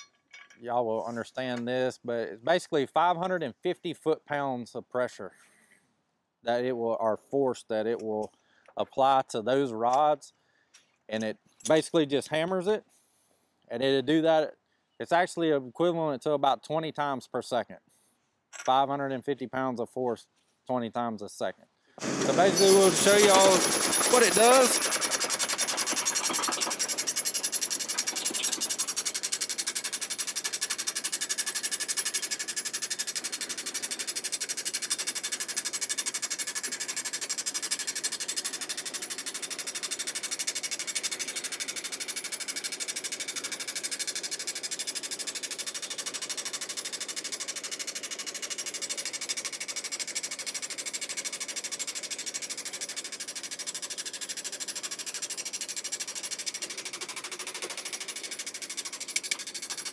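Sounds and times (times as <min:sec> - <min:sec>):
rapid machine hammering: 0:22.0 - 0:59.9.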